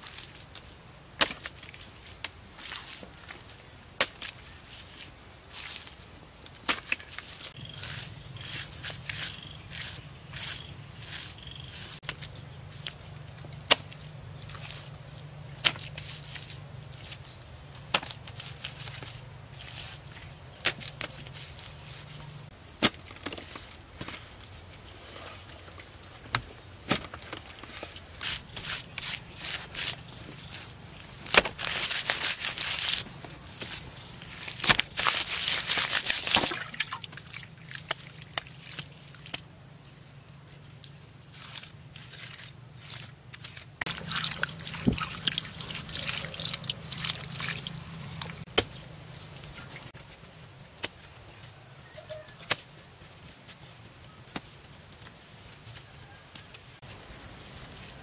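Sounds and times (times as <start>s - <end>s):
wet mud rustling: 0.0s - 39.5s, 40.5s - 51.2s.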